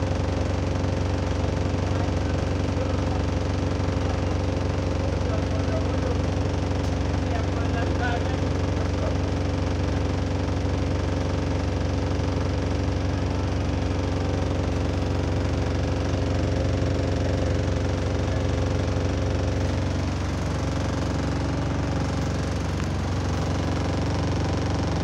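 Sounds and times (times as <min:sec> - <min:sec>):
bus diesel engine idling: 0:00.0 - 0:25.0.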